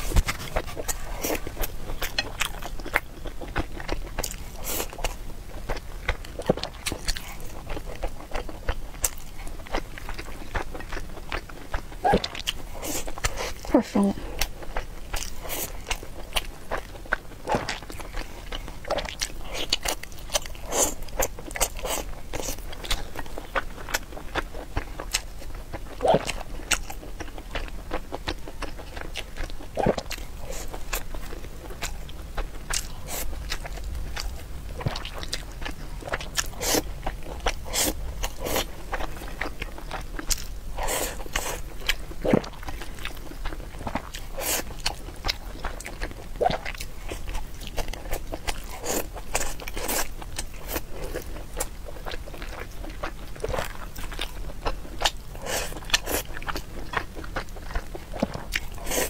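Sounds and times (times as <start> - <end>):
person chewing with smacks: 0.0 - 59.0.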